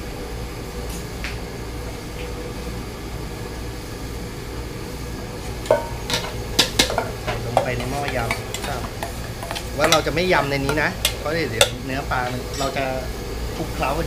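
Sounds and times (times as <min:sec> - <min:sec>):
kitchen background hum: 0:00.0 - 0:14.0
metal kitchenware clanking: 0:05.7 - 0:12.8.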